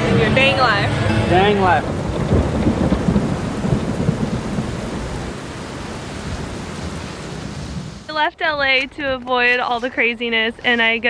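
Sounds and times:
steady rain: 0.0 - 8.1
low rumble of thunder: 1.7 - 8.0.

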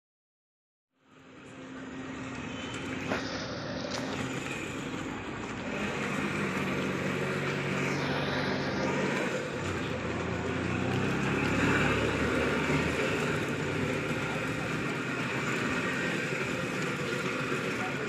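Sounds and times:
traffic rumble and hiss: 1.0 - 18.0.

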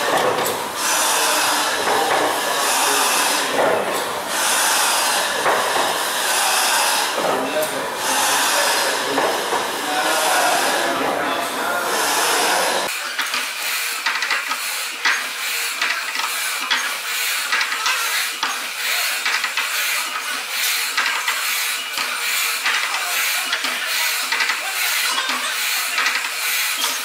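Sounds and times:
steam engine clicking and knocking: 0.0 - 27.0
steam hissing: 0.0 - 27.0.

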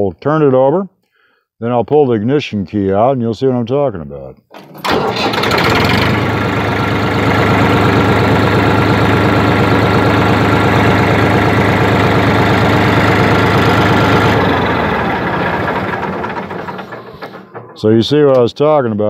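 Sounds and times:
tractor diesel engine idling: 4.6 - 18.7.

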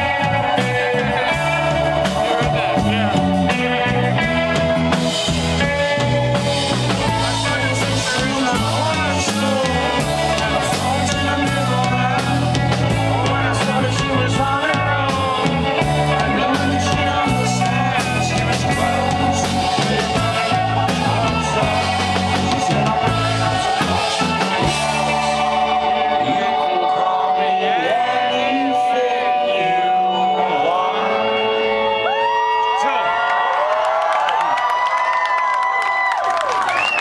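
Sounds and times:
drum kit beat: 0.0 - 25.9
man singing: 0.0 - 32.1
electric guitar: 0.0 - 33.7.

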